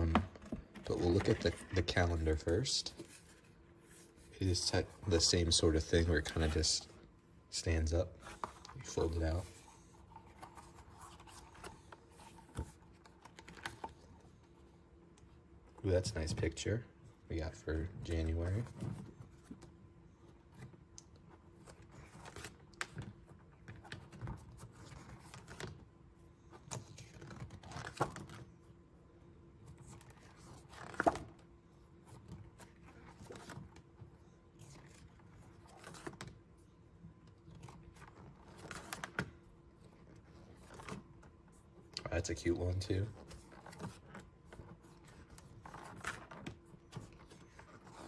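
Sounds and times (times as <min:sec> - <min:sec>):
calendar pages turning: 0:00.0 - 0:06.8, 0:07.6 - 0:14.1, 0:26.5 - 0:28.5, 0:29.7 - 0:31.4, 0:32.1 - 0:36.3, 0:37.3 - 0:41.3, 0:42.0 - 0:48.0.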